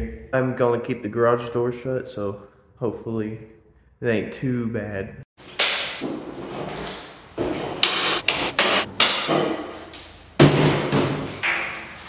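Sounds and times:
folding table legs knocking: 5.4 - 12.0.

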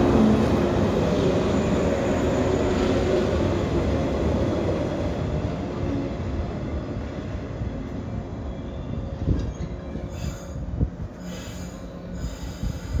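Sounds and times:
train wheels rumbling on rail: 0.0 - 13.0
train brakes squealing: 8.4 - 13.0.

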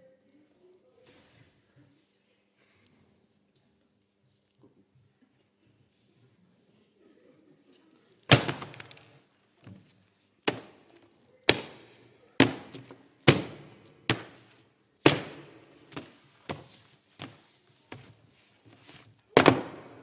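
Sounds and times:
books slammed on tables: 8.3 - 9.2, 10.5 - 10.8, 11.5 - 20.0.

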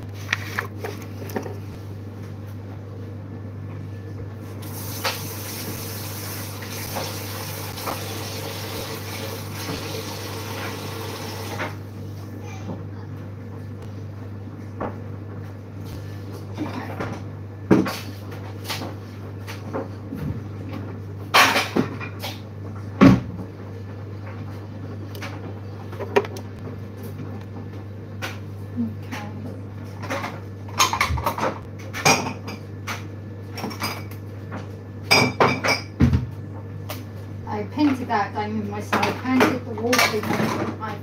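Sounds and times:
steady low hum: 0.0 - 4.6.

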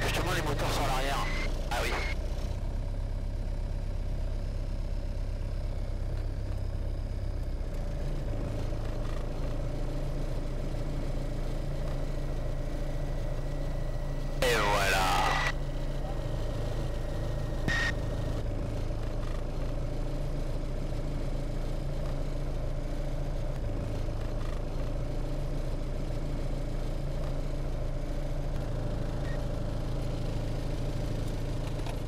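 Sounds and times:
short beep: 1.2 - 2.2, 17.7 - 18.0.

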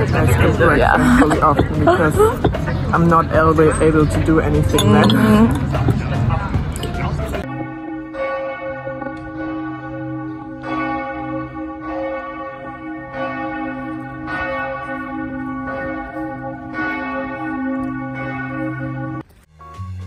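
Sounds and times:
church bells ringing: 0.0 - 6.2, 7.0 - 19.3.

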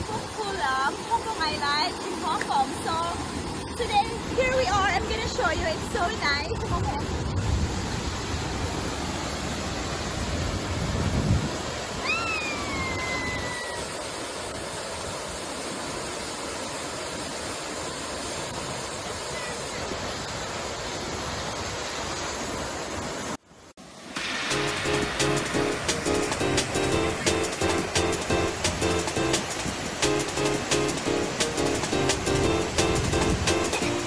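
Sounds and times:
waterfall rushing: 0.0 - 10.8, 11.6 - 22.4, 23.8 - 34.0
wind buffeting microphone: 10.1 - 12.0.

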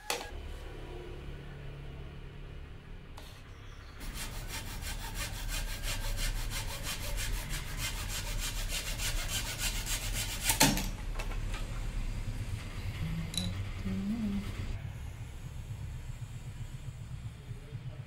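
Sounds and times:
hand saw cutting wood: 4.0 - 10.9.

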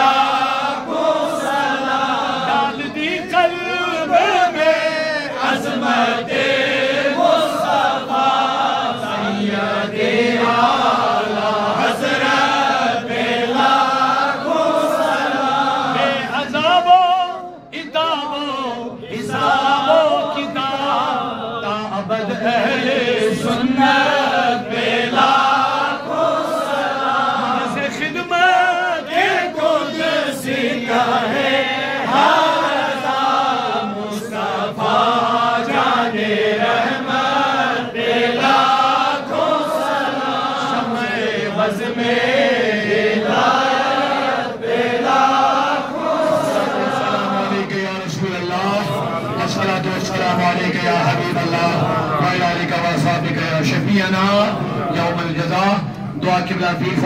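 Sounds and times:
men chanting in unison: 0.0 - 55.6
lead voice over microphone: 47.2 - 57.0.

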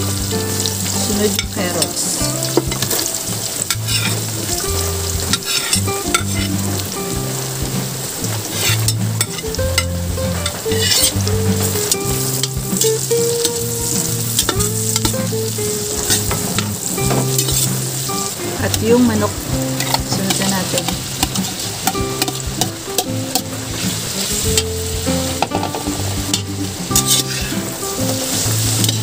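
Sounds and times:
low held notes: 0.0 - 29.0
vegetables sizzling in a pan: 0.0 - 29.0
utensil clicking and scraping pan: 5.2 - 6.6, 27.0 - 27.5.

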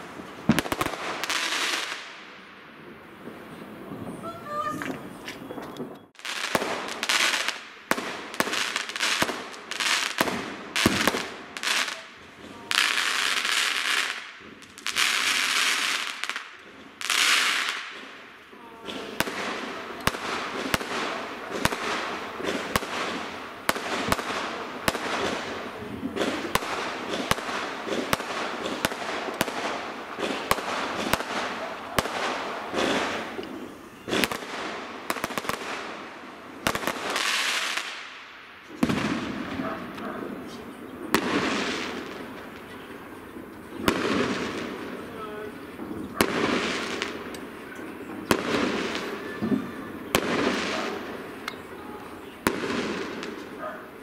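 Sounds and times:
hissing crackle of fireworks: 0.0 - 54.0
firework shells bursting: 4.2 - 40.1.

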